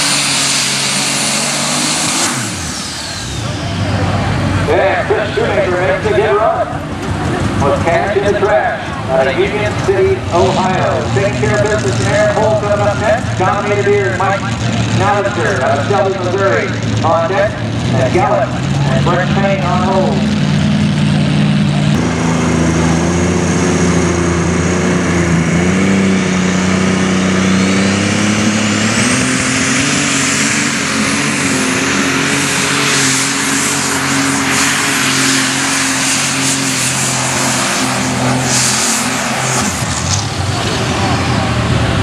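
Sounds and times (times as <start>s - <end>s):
turbo whine: 0.0s - 7.0s
diesel engine revving: 0.0s - 42.0s.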